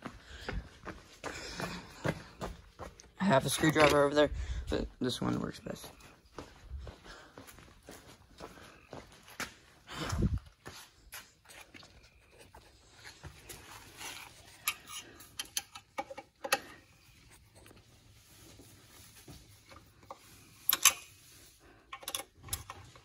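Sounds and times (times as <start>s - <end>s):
screwdriver clicking and scraping screws: 13.7s - 16.7s, 20.1s - 21.2s, 21.9s - 23.0s.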